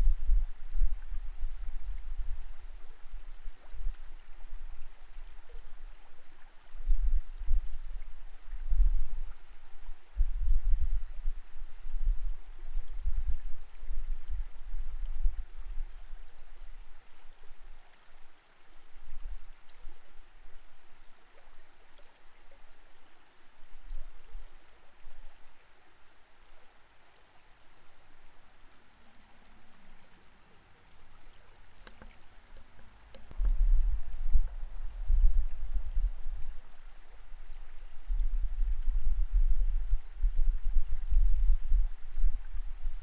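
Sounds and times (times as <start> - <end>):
creek water heard underwater: 0.0 - 43.0
low rumbles: 33.2 - 42.8.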